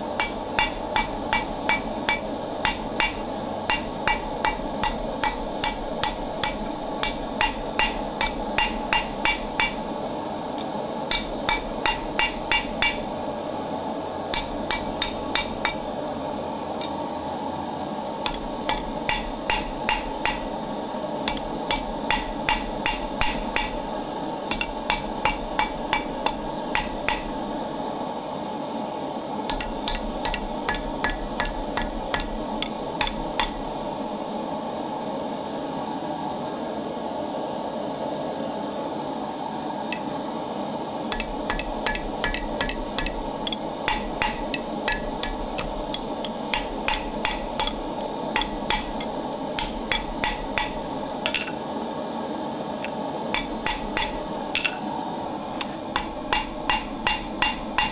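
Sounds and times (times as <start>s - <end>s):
steady background noise: 0.0s - 57.9s
hammer striking hot metal on anvil: 0.2s - 10.0s, 11.1s - 13.2s, 14.3s - 15.9s, 18.2s - 20.6s, 21.3s - 23.9s, 24.5s - 27.5s, 29.5s - 33.7s, 41.1s - 51.6s, 53.3s - 54.8s, 55.6s - 57.9s.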